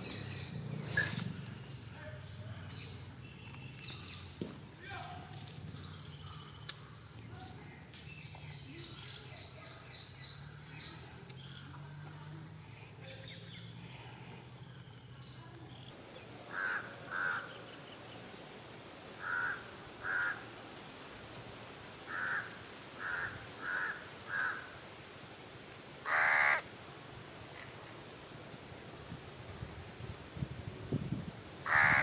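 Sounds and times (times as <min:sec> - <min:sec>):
crow cawing: 0:16.5 - 0:17.5, 0:19.2 - 0:20.4, 0:22.1 - 0:24.7, 0:26.1 - 0:26.6, 0:31.7 - 0:32.0.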